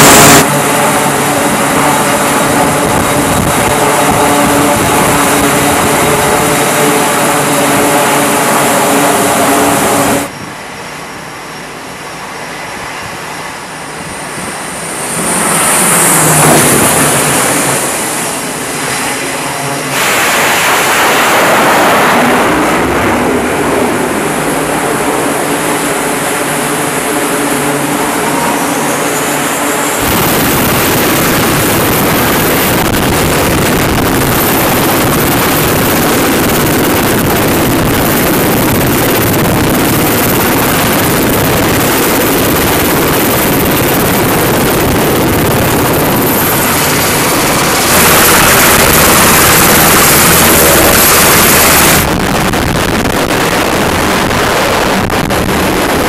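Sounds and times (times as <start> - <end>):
helicopter rotor and turbine: 0.0 - 56.0
jet passing with whine: 0.0 - 56.0
turboprop engines running: 0.0 - 56.0.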